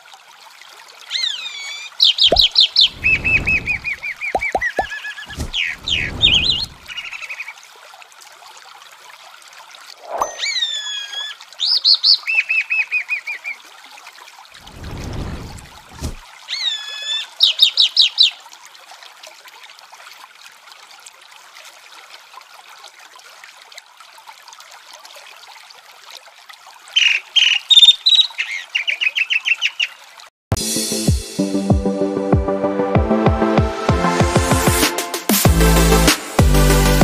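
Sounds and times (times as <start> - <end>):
running water: 0.0 - 30.3
mockingbird singing: 1.1 - 7.4, 27.0 - 29.9.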